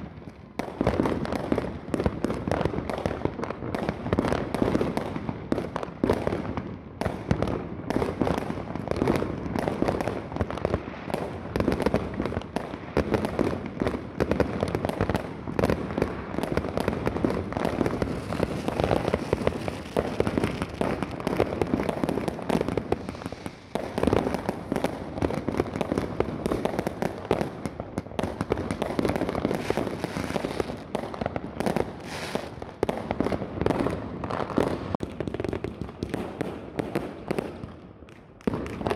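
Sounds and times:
fireworks and firecrackers banging: 0.0 - 38.9.

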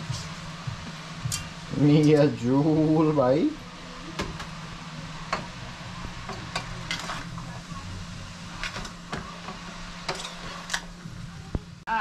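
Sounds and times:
vegetables sizzling in a frying pan: 0.0 - 11.9
spoon scraping a pan: 6.2 - 7.4, 8.6 - 10.9.

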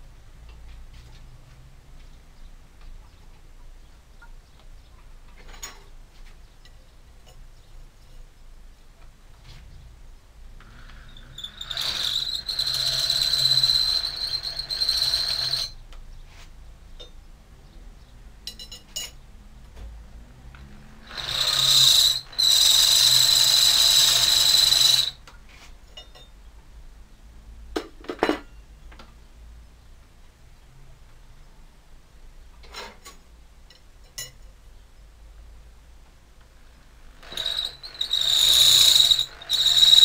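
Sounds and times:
electric drill whining into steel: 10.6 - 15.8, 21.0 - 25.2, 37.2 - 40.0.

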